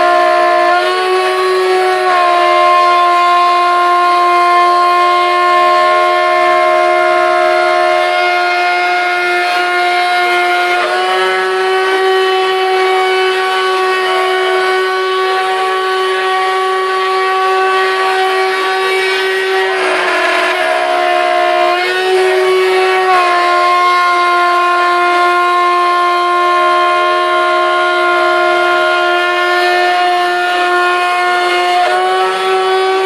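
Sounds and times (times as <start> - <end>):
router spindle whine cutting metal: 10.5 - 33.0.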